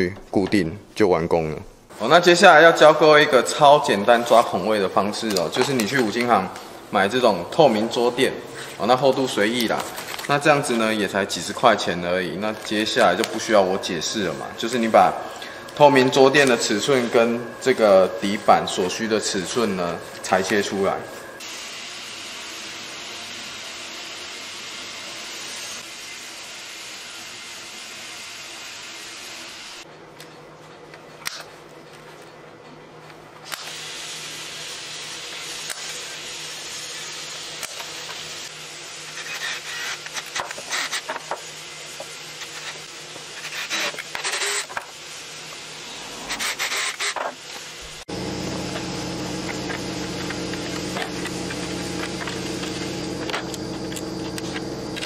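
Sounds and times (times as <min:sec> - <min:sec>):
steady multi-tone hum: 0:00.0 - 0:23.7, 0:34.5 - 0:55.0.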